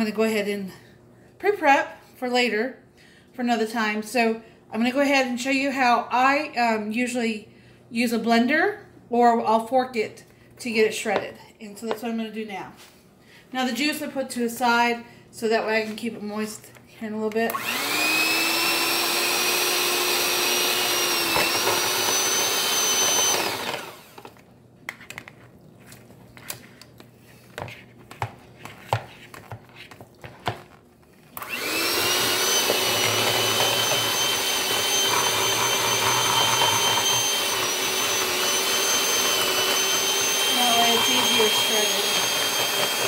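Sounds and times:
electric hand mixer whining: 17.5 - 24.4, 31.4 - 43.0.

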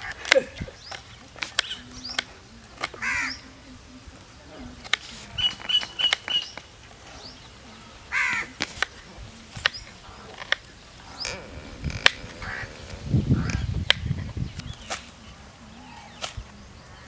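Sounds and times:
harsh bird call: 11.0 - 13.8.

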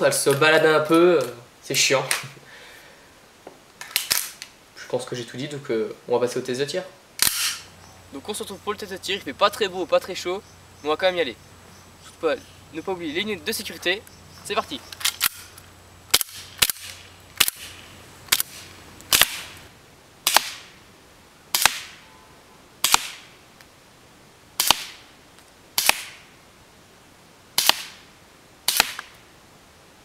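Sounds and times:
airsoft pistol shots: 7.2 - 7.7, 16.1 - 17.7, 18.3 - 19.6, 20.2 - 20.7, 21.5 - 22.0, 22.8 - 23.3, 24.6 - 25.0, 25.8 - 26.2, 27.6 - 28.0, 28.7 - 29.1.

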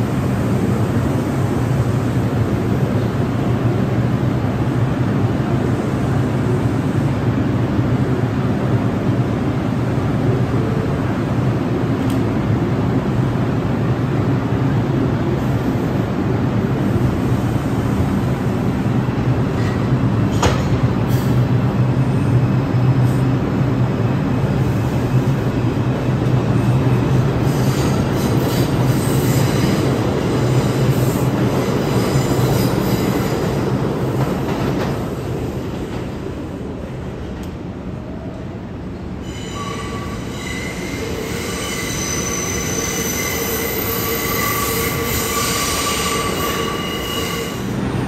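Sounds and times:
rumbling train wheels: 0.0 - 48.0
faint wheel squeal: 39.2 - 47.7.

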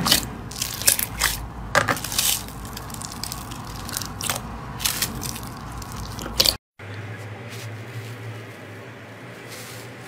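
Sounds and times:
slime crackling and popping: 2.0 - 6.6.

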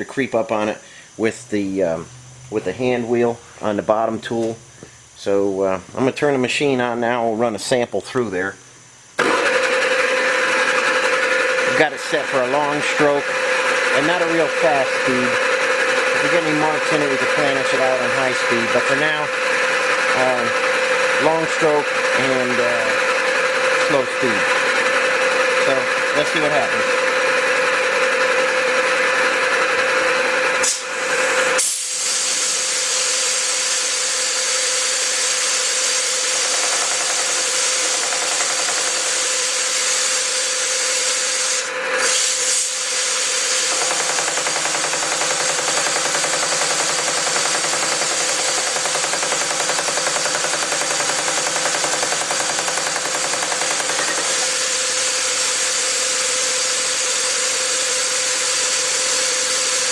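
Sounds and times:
sheet metal machine chattering: 36.3 - 39.3, 43.5 - 54.6.

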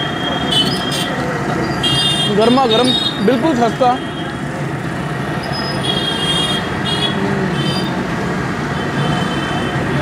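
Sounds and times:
crowd noise: 0.0 - 10.0
traffic hum: 0.0 - 10.0.

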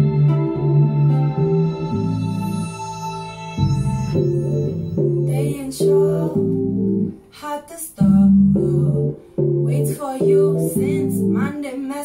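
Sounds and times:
sustained electronic chords: 0.0 - 7.3
woman singing: 5.2 - 12.0.

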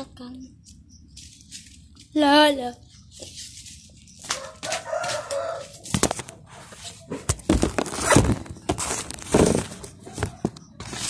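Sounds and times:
chicken calling: 4.2 - 5.8.

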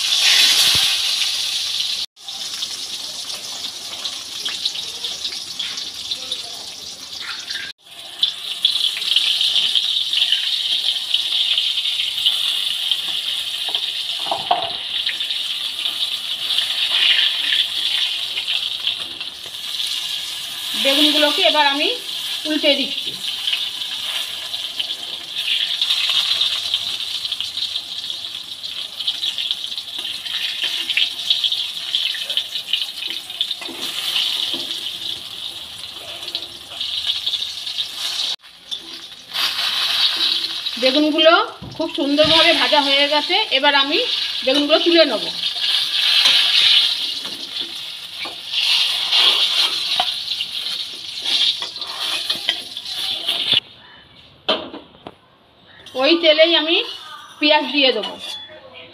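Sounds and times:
vegetables sizzling in oil: 0.0 - 53.6
metal spatula scraping pan: 45.5 - 53.6, 56.8 - 58.6.

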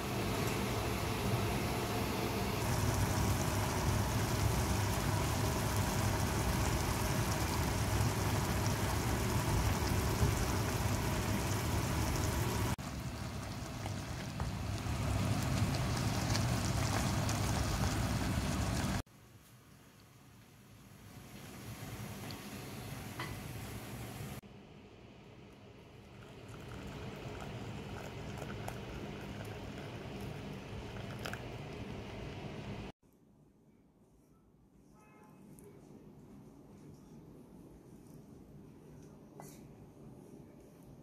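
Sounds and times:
food sizzling in a frying pan: 1.7 - 19.0.

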